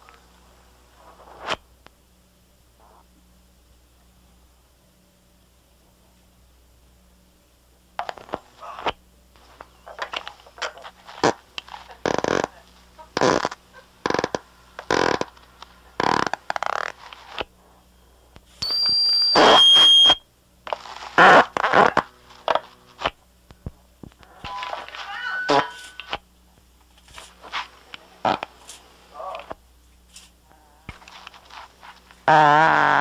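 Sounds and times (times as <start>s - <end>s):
faint low hum: 0.0s - 33.0s
fart sounds from cassette tape: 1.2s - 1.6s, 11.1s - 11.4s, 12.0s - 12.5s, 13.2s - 15.4s, 16.0s - 17.5s, 19.4s - 23.1s, 24.3s - 26.2s, 28.2s - 28.5s, 32.2s - 33.0s
loud high-pitched tone: 18.6s - 20.2s, 24.5s - 26.1s.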